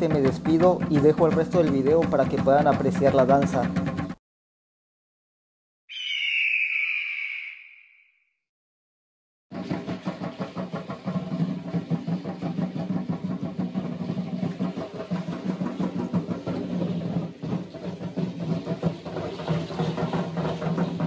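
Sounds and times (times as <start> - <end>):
fast drum percussion beat: 0.0 - 4.2, 9.5 - 21.0.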